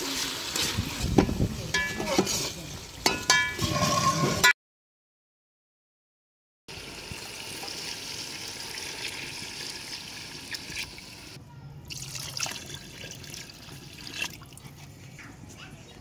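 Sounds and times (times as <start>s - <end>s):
water pouring into a pot: 0.0s - 1.7s, 6.7s - 14.7s.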